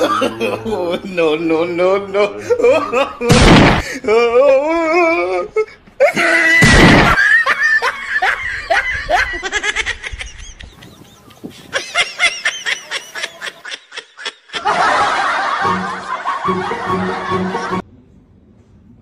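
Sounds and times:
high-pitched laugh: 0.0 - 1.1, 6.0 - 17.8
people laughing: 0.0 - 3.3, 6.0 - 17.8.

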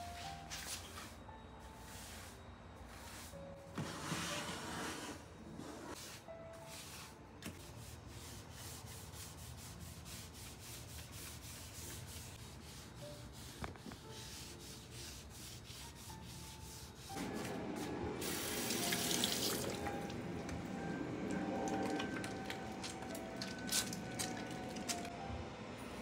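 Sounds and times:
tap water running into sink: 18.3 - 20.2.

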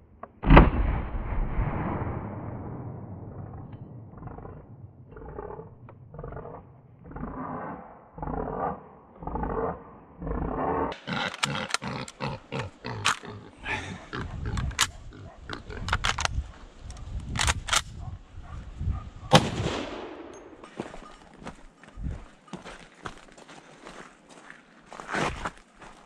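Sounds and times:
gunshot echo: 0.4 - 4.1, 19.3 - 20.6
dogs barking and baying: 9.5 - 16.0, 17.9 - 19.4, 20.6 - 22.6
gunshots: 19.3 - 20.6.

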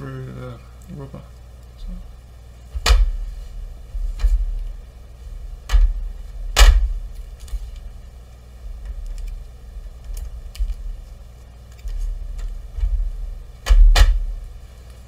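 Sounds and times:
dull knocks on metal sheet: 6.6 - 7.0, 13.6 - 14.3.

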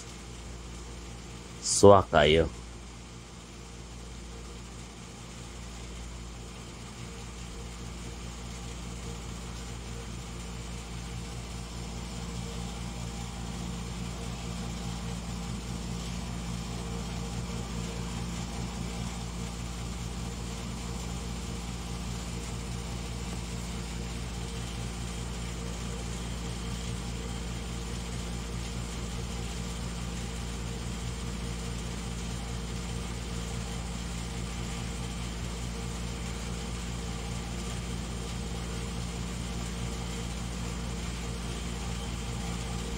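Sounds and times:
steady mechanical hum: 0.0 - 42.9.

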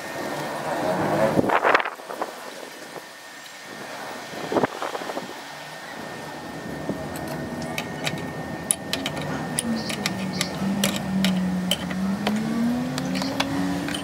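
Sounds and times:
engine humming: 5.3 - 14.0
wrench clicking on metal fitting: 7.2 - 14.0.

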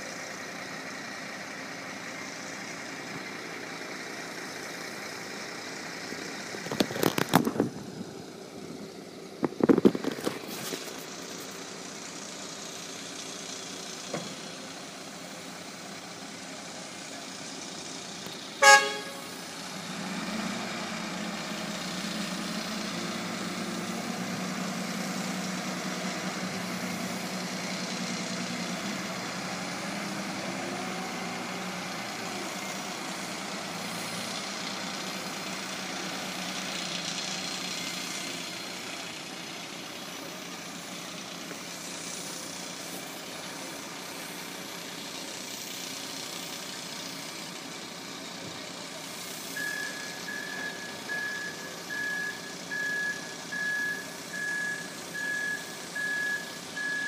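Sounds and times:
wheel loader diesel engine: 0.0 - 57.0
horn toot: 18.6 - 19.4.

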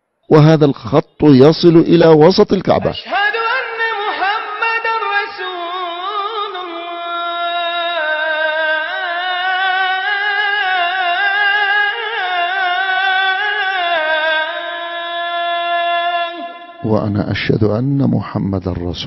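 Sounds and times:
person singing long held notes: 3.1 - 17.0.

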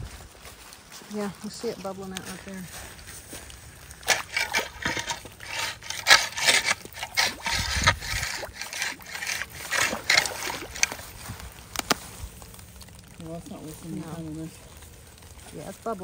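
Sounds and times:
pole splashing in floodwater: 3.7 - 16.0.

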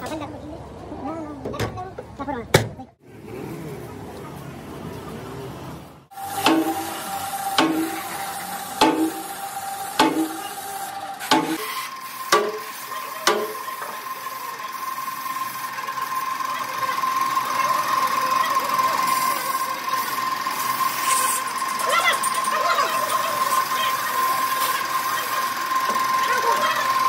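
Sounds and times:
spray gun hissing: 6.2 - 21.6.

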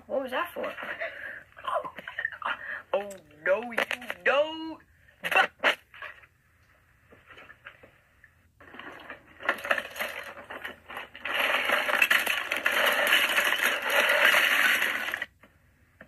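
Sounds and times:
plastic bricks clattering in bin: 8.6 - 15.4.

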